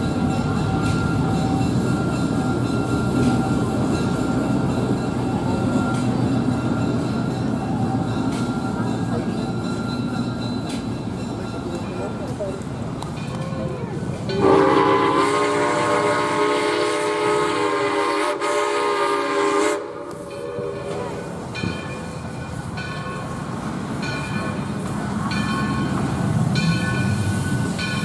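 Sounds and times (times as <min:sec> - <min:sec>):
low rumble of train: 0:00.0 - 0:28.0
steam whistle blasts: 0:14.4 - 0:21.2.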